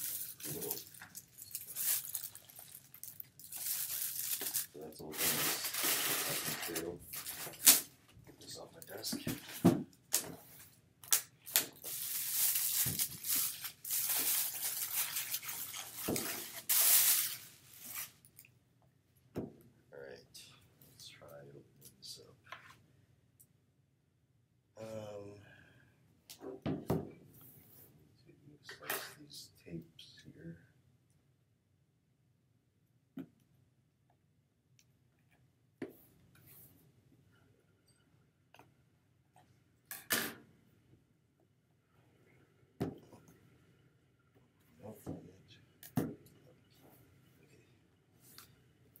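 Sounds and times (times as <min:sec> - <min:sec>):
plastic bag crinkling: 0:00.0 - 0:07.3, 0:11.9 - 0:18.1.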